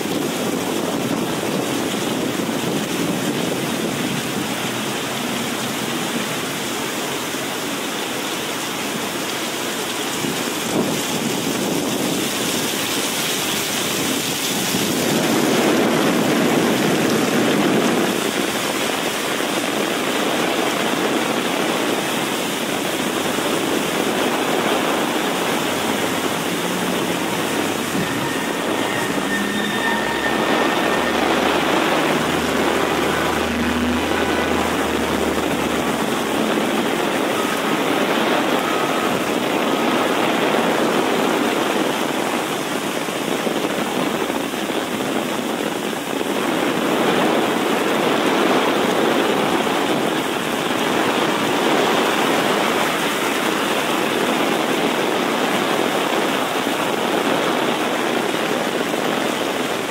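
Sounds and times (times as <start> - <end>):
traffic engine rumble: 0.0 - 12.1, 12.7 - 45.1
heavy rain pouring: 0.0 - 59.9
running water: 0.0 - 59.9.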